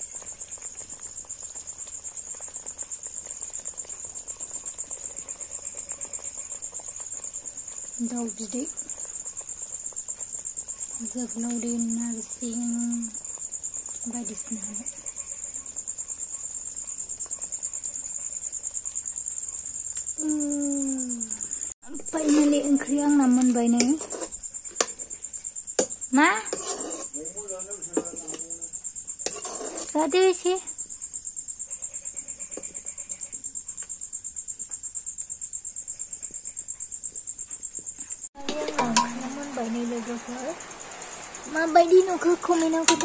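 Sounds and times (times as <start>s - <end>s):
cricket chirping: 0.0s - 43.0s
person speaking: 38.4s - 40.6s.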